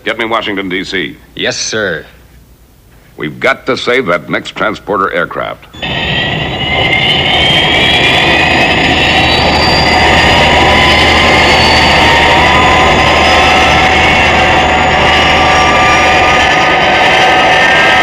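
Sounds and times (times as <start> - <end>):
jet engines roaring and whining: 5.7 - 18.0.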